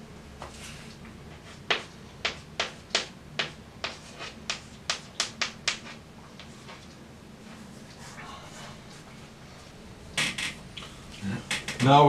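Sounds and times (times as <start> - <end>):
chalk tapping on blackboard: 1.4 - 6.6.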